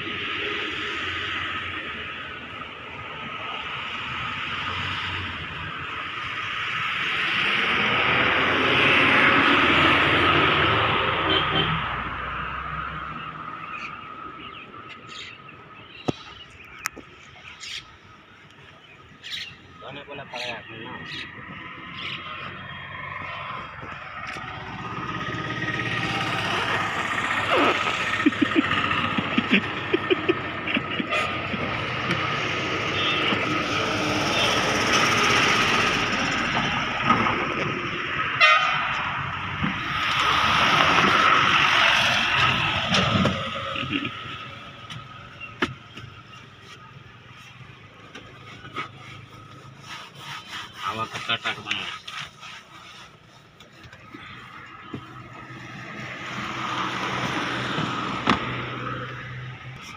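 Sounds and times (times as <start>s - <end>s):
loud mechanical noise with whine: 0.0s - 12.0s, 18.1s - 59.9s
birds chirping: 13.0s - 35.0s.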